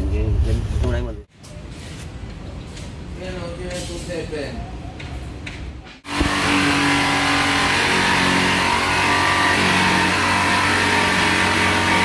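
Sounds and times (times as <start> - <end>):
electric power tool on metal panel: 6.1 - 12.0.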